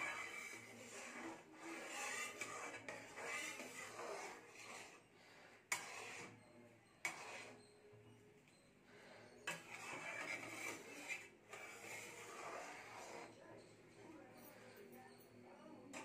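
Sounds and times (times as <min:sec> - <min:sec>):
ladle scraping pan: 0:00.0 - 0:05.0, 0:05.7 - 0:07.6, 0:09.4 - 0:13.4.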